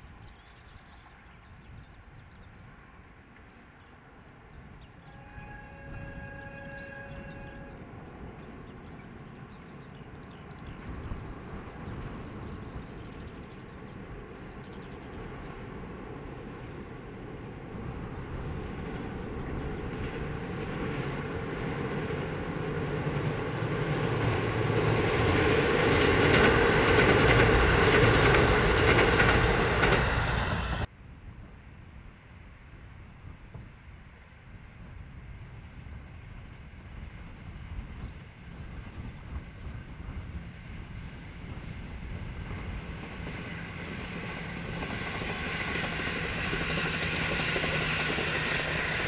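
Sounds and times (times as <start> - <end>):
diesel train on bridge: 0.0 - 49.0.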